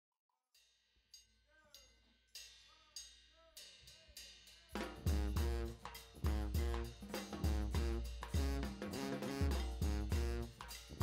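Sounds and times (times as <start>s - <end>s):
drum and cymbal strikes: 0.6s - 11.0s
band with strong bass beat: 4.8s - 11.0s.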